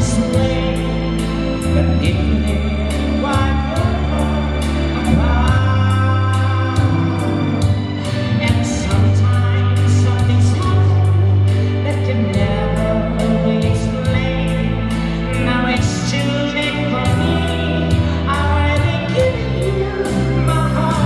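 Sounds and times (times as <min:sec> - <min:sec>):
amplified accompaniment with beat: 0:00.0 - 0:21.0
person singing into microphone: 0:00.0 - 0:21.0.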